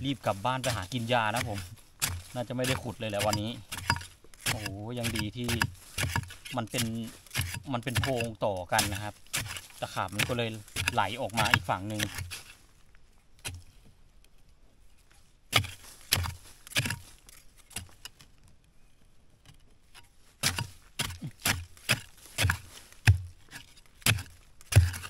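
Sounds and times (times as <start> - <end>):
digging tool striking hard soil: 0.0 - 12.5, 15.5 - 18.0, 20.4 - 25.0.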